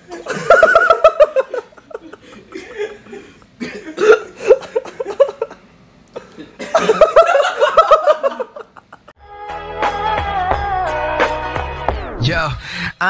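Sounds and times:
man laughing: 0.0s - 5.6s, 6.6s - 9.1s.

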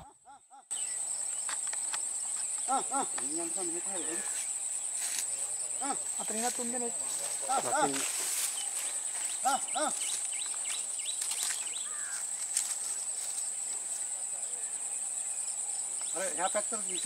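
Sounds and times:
insects droning: 0.0s - 17.0s.

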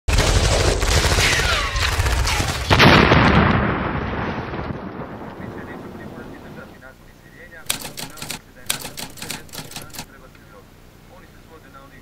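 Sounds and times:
rumbling gunfire: 0.1s - 6.0s
loud explosion: 0.1s - 6.5s.

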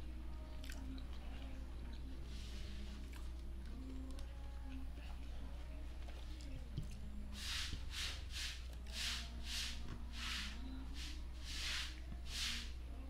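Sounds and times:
chewing food close up: 0.3s - 2.2s, 2.9s - 7.1s.

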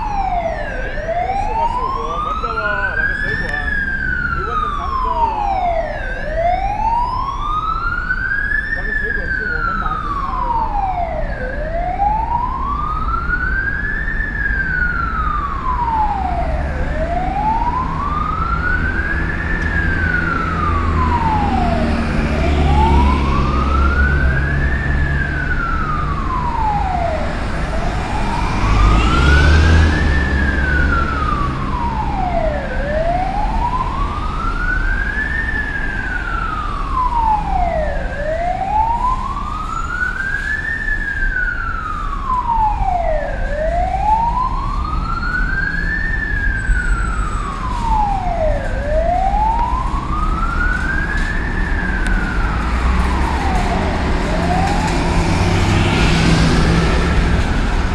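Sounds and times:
ambulance siren wailing: 0.0s - 57.9s
engine and traffic rumble: 0.0s - 57.9s.

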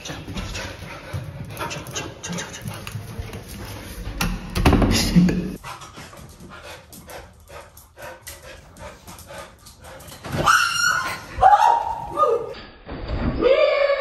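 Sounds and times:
dogs panting: 0.0s - 4.1s, 5.6s - 10.4s.

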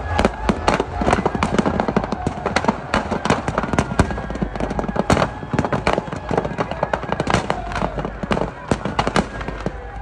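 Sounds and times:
firecrackers cracking and banging: 0.0s - 10.0s.

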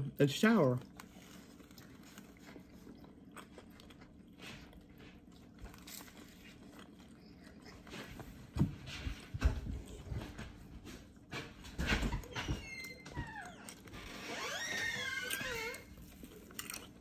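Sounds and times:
person chewing food: 0.4s - 17.0s.

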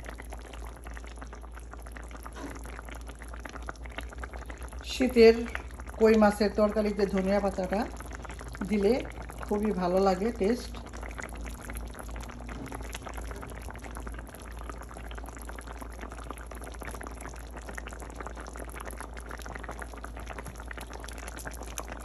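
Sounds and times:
curry bubbling in a pot: 0.0s - 22.0s.

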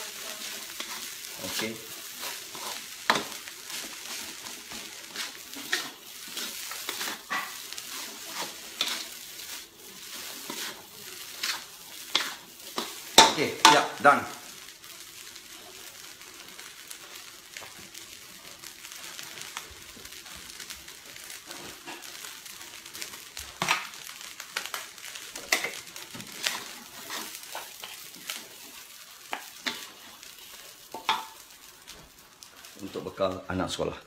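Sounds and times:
wooden spatula scraping wok: 0.0s - 33.2s
rice sizzling in a wok: 0.0s - 34.0s.

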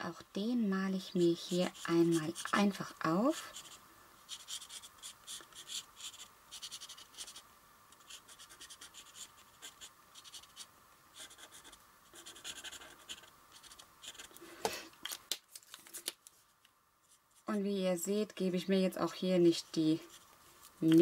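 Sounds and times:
marker scratching on paper: 1.3s - 7.4s, 8.0s - 14.4s.

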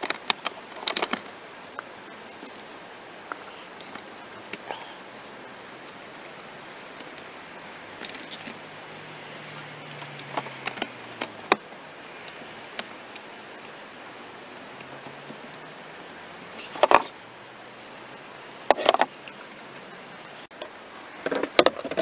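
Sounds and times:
plastic clicks and rattles: 0.0s - 1.3s
steady hiss: 0.0s - 22.0s.

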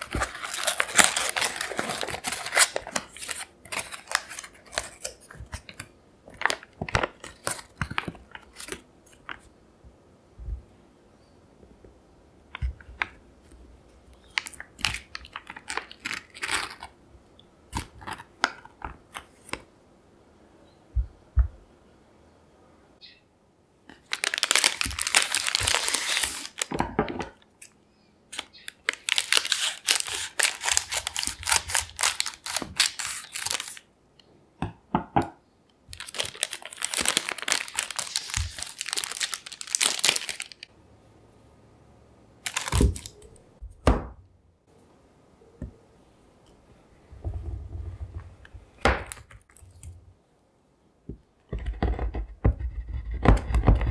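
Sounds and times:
scissors cutting plastic bag: 0.0s - 5.8s, 24.1s - 26.7s, 28.3s - 33.8s, 36.0s - 40.6s
plastic bag crinkling: 0.0s - 9.4s, 14.2s - 17.0s, 23.9s - 27.3s, 28.3s - 33.8s, 35.9s - 40.7s, 42.4s - 43.2s.

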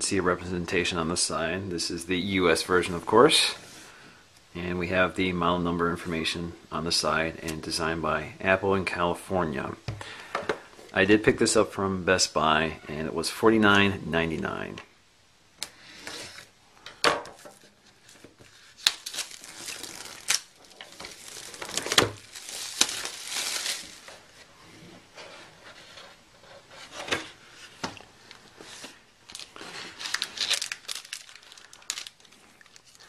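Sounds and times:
plastic wrap crinkling: 17.4s - 24.5s, 28.2s - 33.0s.

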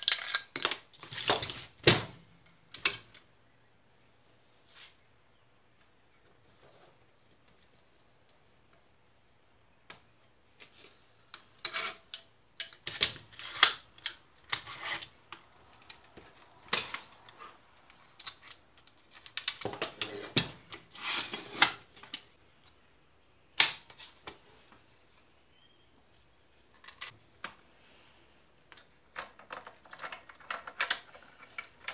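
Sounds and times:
gun parts clicking and knocking: 17.9s - 20.1s, 28.7s - 31.9s.

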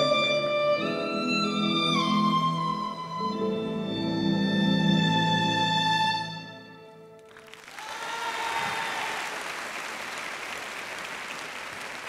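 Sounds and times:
accompaniment music: 0.0s - 7.6s
audience applauding: 7.2s - 12.0s.

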